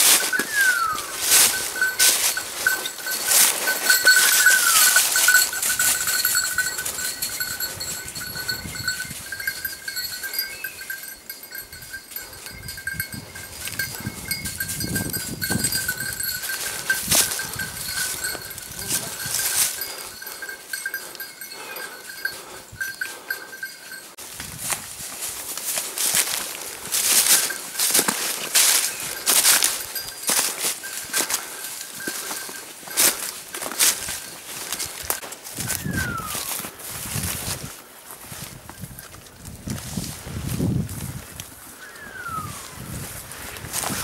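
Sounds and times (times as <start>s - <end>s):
footsteps in dry leaves: 0.0s - 20.4s, 23.6s - 44.0s
small dog bell ringing: 0.0s - 24.2s, 26.6s - 36.6s.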